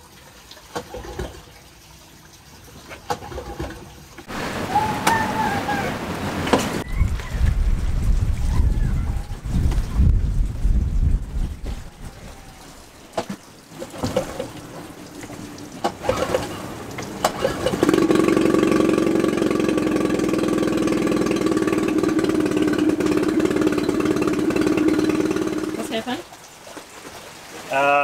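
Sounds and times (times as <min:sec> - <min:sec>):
outboard motor idling: 0:14.4 - 0:26.2.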